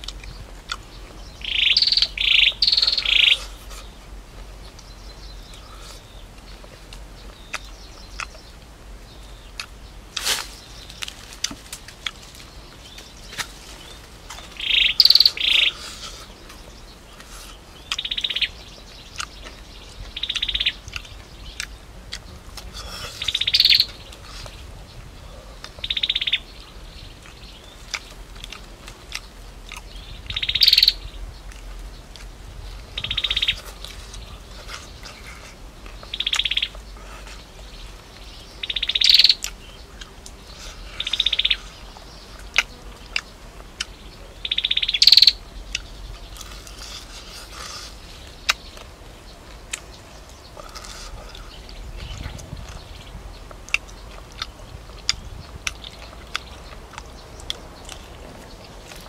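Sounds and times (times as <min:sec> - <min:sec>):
bird buzzy trill call: 0:01.4 - 0:03.6, 0:14.6 - 0:16.2, 0:22.8 - 0:24.0, 0:38.6 - 0:39.5, 0:44.4 - 0:45.4
chewing clicks: 0:06.4 - 0:08.7, 0:09.5 - 0:12.4, 0:17.2 - 0:18.5, 0:19.1 - 0:24.6, 0:27.2 - 0:32.3, 0:33.2 - 0:37.4, 0:41.0 - 0:44.0, 0:49.7 - 0:59.0.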